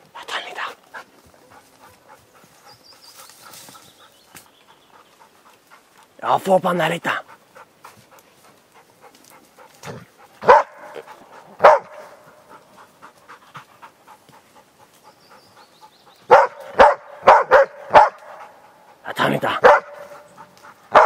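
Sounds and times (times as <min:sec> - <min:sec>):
dog barking: 0:09.9 - 0:12.5, 0:16.3 - 0:18.6, 0:19.3 - 0:21.0.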